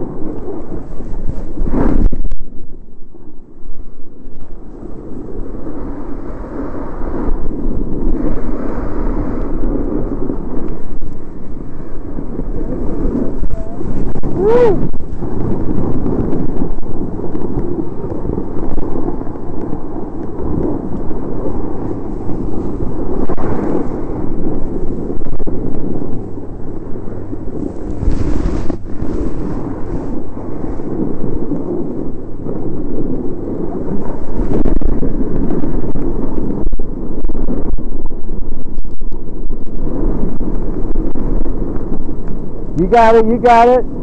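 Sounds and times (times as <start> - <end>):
wind buffeting microphone: 0.0 - 44.0
snow scraping: 0.2 - 2.3, 4.8 - 19.3, 19.9 - 36.6.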